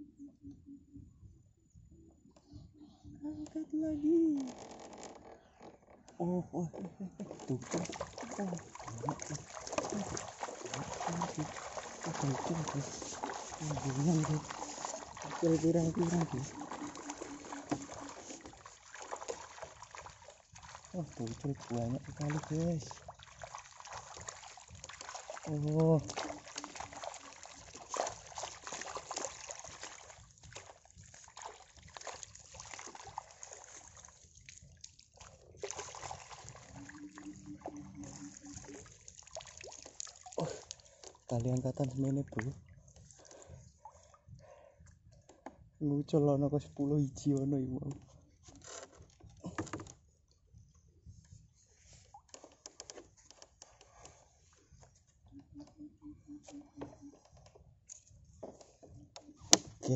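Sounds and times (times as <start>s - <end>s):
small splashes and drips: 6.8s - 45.6s, 51.2s - 55.8s
water trickling off net: 7.2s - 37.2s, 38.0s - 42.6s.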